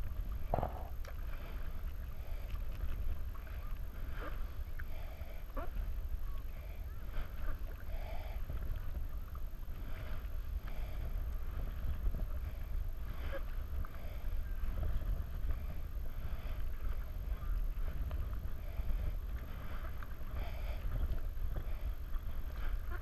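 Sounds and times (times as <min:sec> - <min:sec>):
low rumble: 0:00.0 - 0:04.6
paddle splashing in water: 0:00.0 - 0:23.0.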